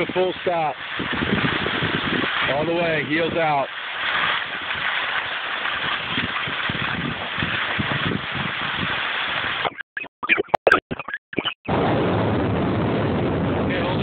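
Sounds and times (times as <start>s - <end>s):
skis sliding on snow: 0.0s - 9.8s
wind on microphone: 0.0s - 9.8s, 11.7s - 14.0s
crackles: 0.0s - 14.0s.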